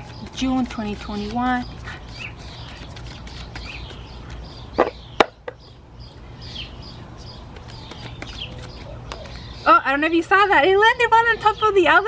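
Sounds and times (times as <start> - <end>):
birds chirping faintly: 0.0 - 12.0
cards snapping while shuffled: 7.5 - 9.4.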